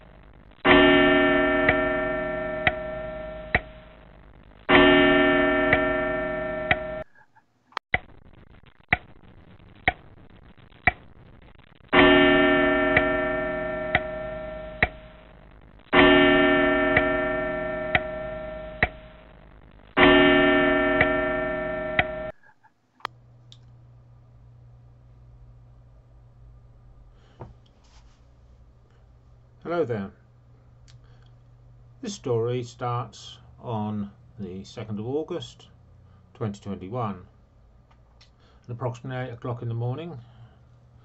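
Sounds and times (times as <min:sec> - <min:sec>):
low steady hum: 0:00.0 - 0:07.1, 0:08.0 - 0:41.0
deep bell ringing: 0:00.7 - 0:03.2, 0:16.0 - 0:19.0, 0:20.0 - 0:22.3
clock ticking: 0:08.9 - 0:09.1, 0:09.8 - 0:10.1, 0:10.8 - 0:11.1, 0:16.9 - 0:17.2, 0:17.9 - 0:18.2.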